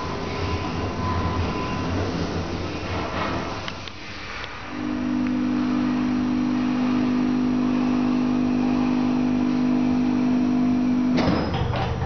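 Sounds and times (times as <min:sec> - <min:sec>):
elevator drive humming: 0:04.6 - 0:12.0.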